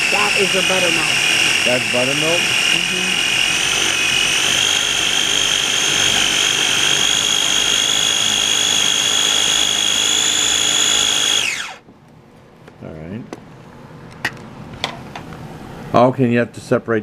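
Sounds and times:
food processor motor whining: 0:00.0 - 0:11.9.

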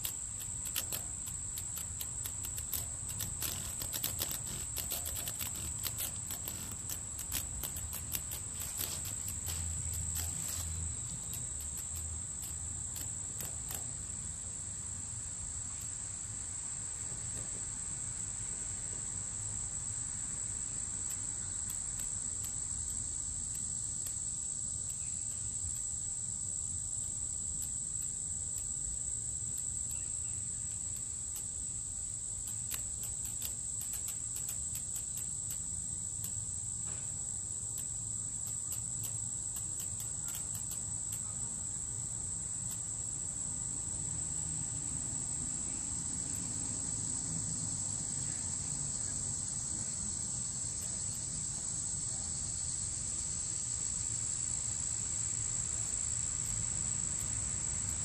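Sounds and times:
faint clicks: 0:00.0 - 0:14.0, 0:21.0 - 0:24.2, 0:32.3 - 0:37.0, 0:37.7 - 0:41.4
high-pitched insect chorus: 0:00.0 - 0:58.0.

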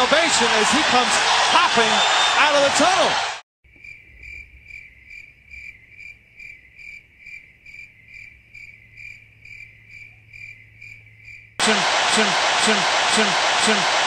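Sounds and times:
crickets chirping: 0:03.7 - 0:11.6.

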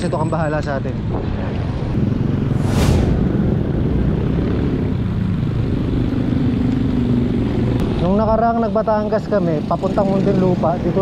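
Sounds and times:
passing traffic whoosh: 0:01.3 - 0:06.6.

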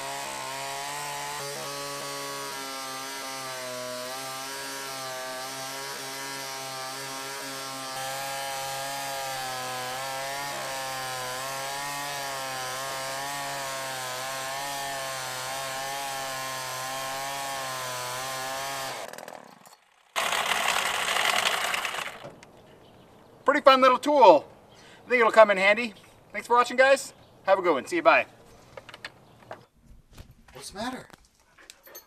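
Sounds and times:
chainsaw engine running: 0:00.0 - 0:22.3.

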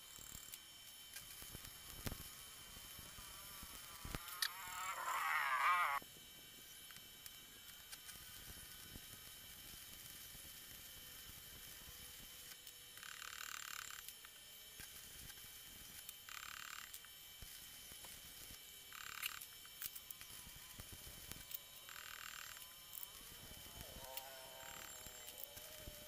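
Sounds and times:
welding arc crackling and hissing: 0:00.0 - 0:06.0, 0:16.8 - 0:26.0.

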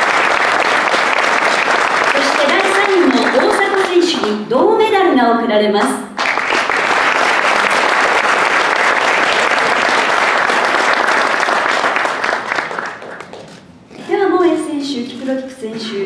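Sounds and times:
audience applauding: 0:00.0 - 0:04.4, 0:06.2 - 0:13.6.

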